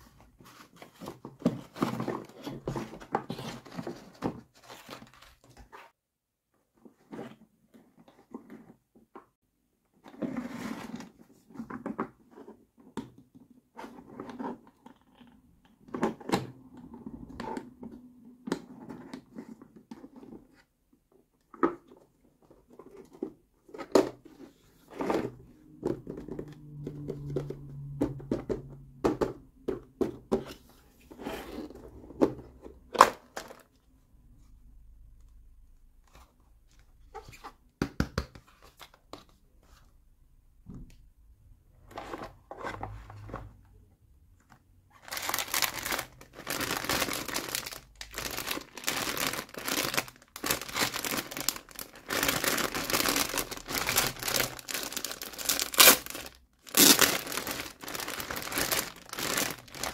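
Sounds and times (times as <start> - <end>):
plastic rubbing and scraping: 44.9 - 59.9.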